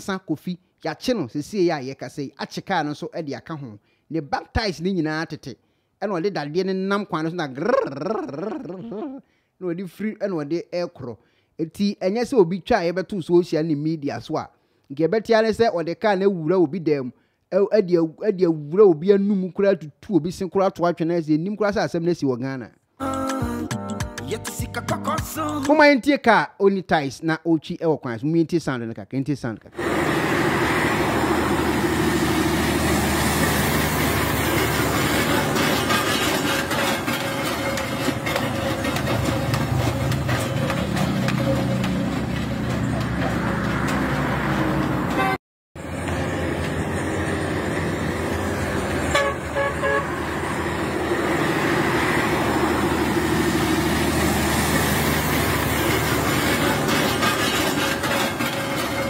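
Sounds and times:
road traffic: 7.6s - 9.6s, 29.7s - 59.0s
truck diesel engine passing: 29.8s - 59.0s
vehicle horn: 45.1s - 45.4s, 49.0s - 50.2s.

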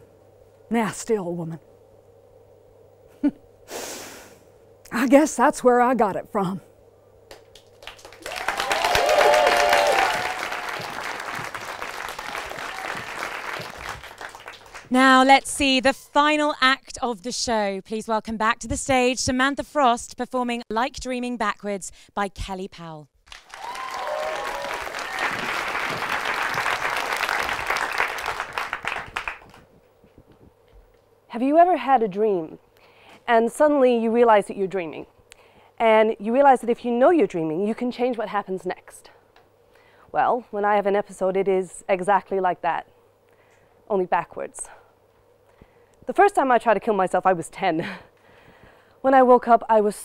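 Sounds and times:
audience applauding: 7.4s - 14.9s, 23.3s - 29.7s
whoops: 8.2s - 13.7s, 23.4s - 26.1s.

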